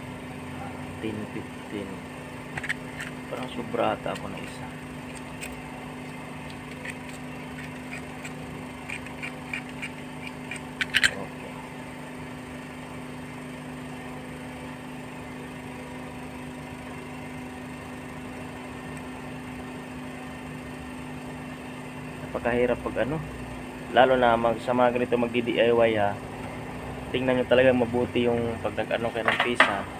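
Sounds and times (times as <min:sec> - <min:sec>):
steady low hum: 0:00.0 - 0:29.9
clicks of components being handled: 0:02.5 - 0:03.2, 0:05.1 - 0:11.2, 0:29.2 - 0:29.9.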